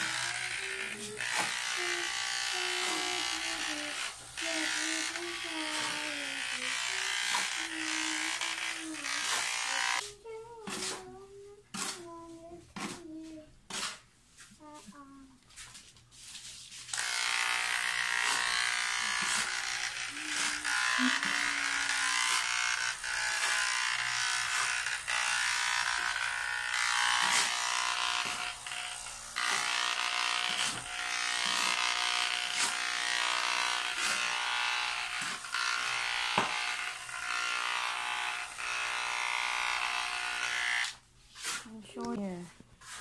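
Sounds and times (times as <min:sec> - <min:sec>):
electric hair clippers buzzing: 0:00.0 - 0:10.0, 0:16.9 - 0:41.0.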